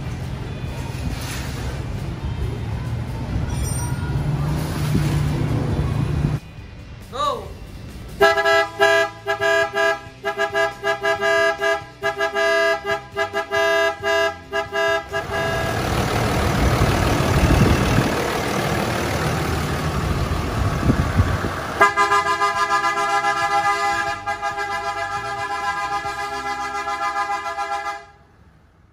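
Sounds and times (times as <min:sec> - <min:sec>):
short electric horn blasts: 0:08.2 - 0:15.9, 0:21.8 - 0:28.2
loud rushing noise: 0:15.1 - 0:22.1.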